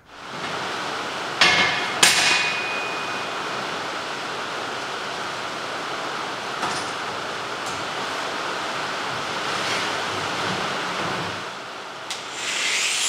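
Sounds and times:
heavy rain: 0:00.1 - 0:12.1
metal clangs: 0:01.4 - 0:03.7.

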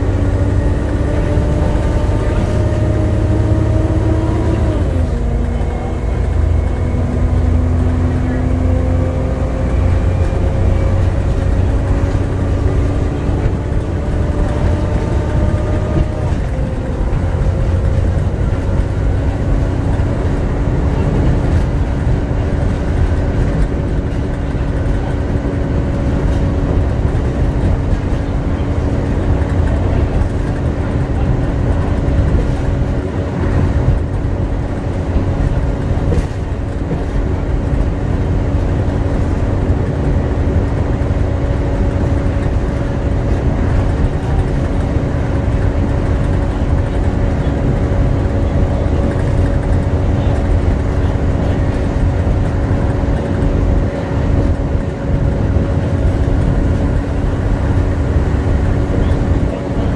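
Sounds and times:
bus engine rumble: 0:00.0 - 0:59.9
constant engine whine: 0:00.0 - 0:59.9.

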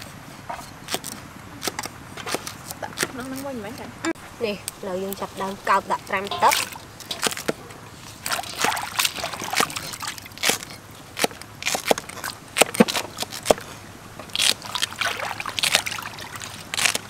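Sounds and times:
water sloshing and trickling: 0:04.9 - 0:17.0.

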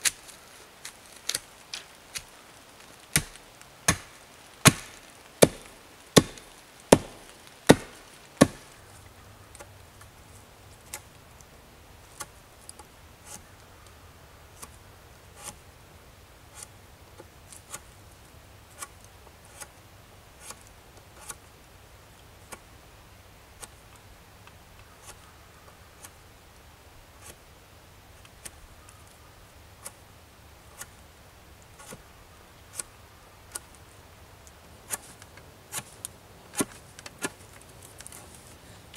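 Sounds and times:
hatchet chopping into log: 0:03.1 - 0:08.7.

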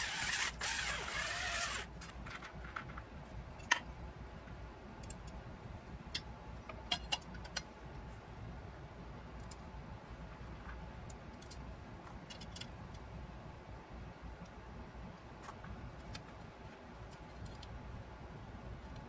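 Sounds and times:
cordless drill against metal plate: 0:00.0 - 0:01.9.

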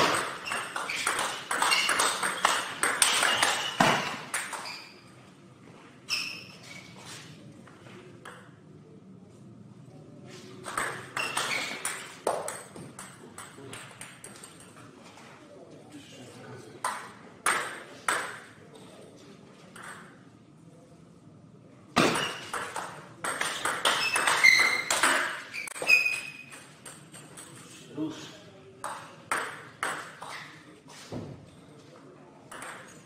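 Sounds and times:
ping pong ball bouncing on table: 0:00.0 - 0:04.7, 0:10.7 - 0:14.3, 0:16.8 - 0:18.5, 0:19.7 - 0:20.1, 0:22.0 - 0:27.4, 0:28.8 - 0:30.3, 0:32.5 - 0:33.0
ping pong ball hitting paddles: 0:00.0 - 0:04.9, 0:10.6 - 0:14.7, 0:16.8 - 0:18.6, 0:19.7 - 0:20.2, 0:22.0 - 0:27.6, 0:28.8 - 0:30.6, 0:32.5 - 0:33.0.

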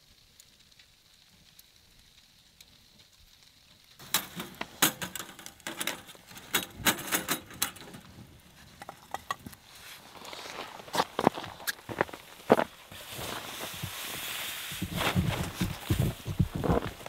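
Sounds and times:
wood fire crackling: 0:00.0 - 0:17.0
metal tongs clinking: 0:04.0 - 0:08.1.

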